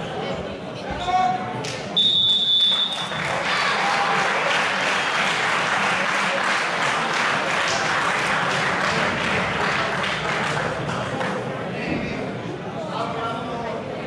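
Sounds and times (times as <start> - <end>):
crowd applauding: 2.5 - 11.5.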